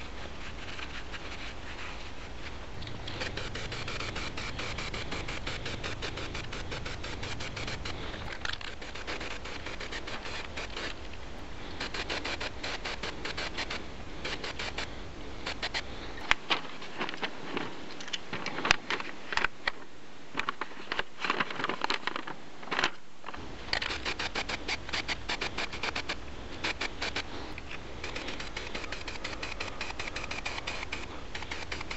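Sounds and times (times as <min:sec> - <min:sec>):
spray paint can hissing: 0:03.1 - 0:11.0, 0:11.8 - 0:14.9, 0:28.1 - 0:31.9
paper rustling and crinkling: 0:15.5 - 0:31.9.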